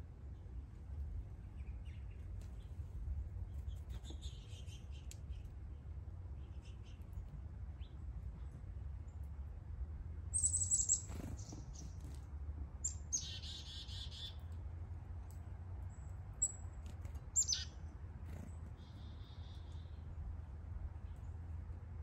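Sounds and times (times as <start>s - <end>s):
songbirds calling: 1.3s - 9.3s, 10.3s - 12.2s, 12.8s - 14.6s, 15.8s - 20.3s.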